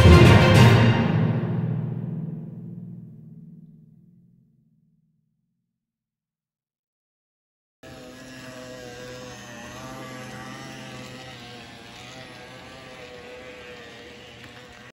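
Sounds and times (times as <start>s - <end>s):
diesel locomotive engine drone: 7.8s - 14.9s.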